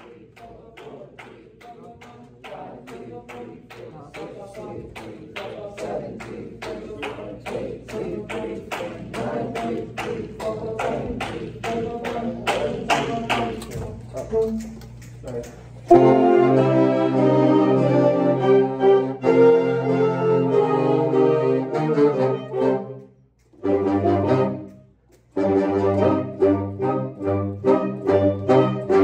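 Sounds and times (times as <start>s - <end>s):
people singing: 0.0s - 14.0s.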